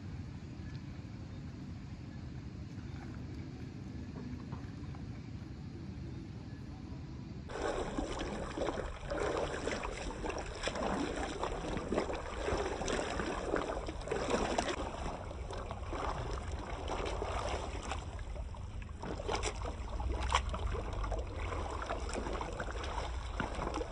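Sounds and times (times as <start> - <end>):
weeder splashing through mud: 7.5 - 23.9.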